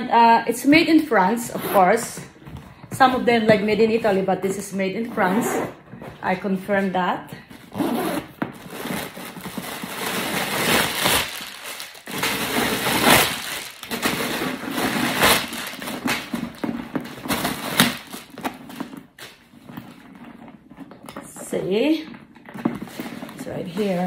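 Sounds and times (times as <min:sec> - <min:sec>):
canvas backpack rustling and scraping: 0:07.5 - 0:20.8.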